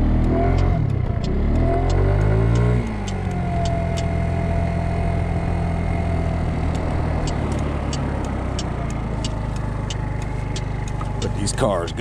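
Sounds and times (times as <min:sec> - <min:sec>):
scooter engine idling: 0:03.0 - 0:12.0.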